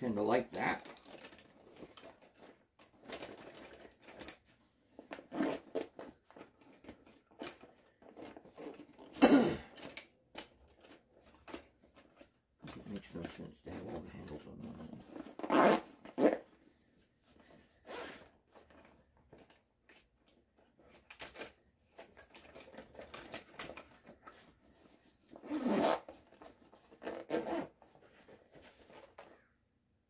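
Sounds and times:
zippers opening and closing: 0:00.5 - 0:16.6, 0:17.4 - 0:19.5, 0:20.8 - 0:29.5
pliers handled into pockets: 0:18.6 - 0:29.4.

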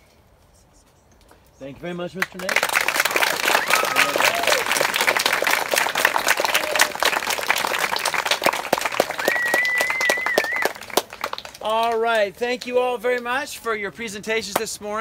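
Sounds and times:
audience clapping: 0:02.2 - 0:13.3
high whistle: 0:09.2 - 0:10.7.

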